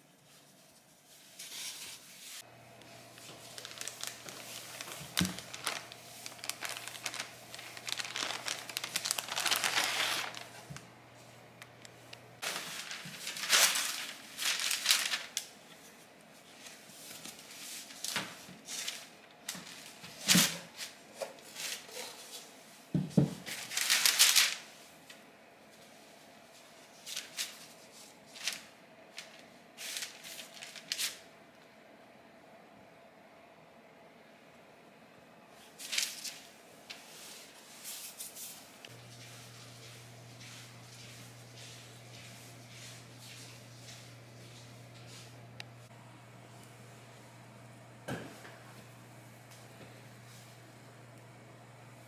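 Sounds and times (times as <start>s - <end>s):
paper and cloth rustling: 0.2s - 22.5s, 23.4s - 24.8s, 25.7s - 31.2s, 35.6s - 45.3s
plastic bag crinkling: 2.9s - 10.9s, 11.6s - 15.5s, 23.5s - 24.7s, 28.4s - 31.2s.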